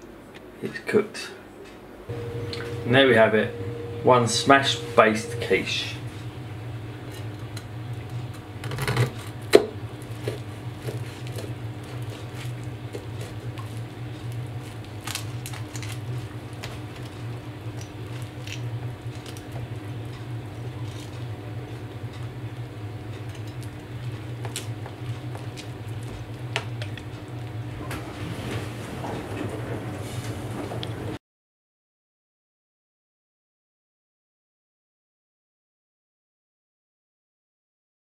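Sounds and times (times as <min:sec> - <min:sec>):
steady low hum: 0:01.9 - 0:31.1
pastry crunching: 0:08.6 - 0:22.2.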